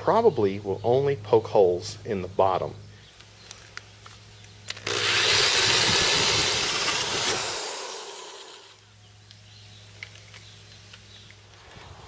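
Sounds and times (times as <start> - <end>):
power drill cutting plastic pipe: 4.7 - 8.8.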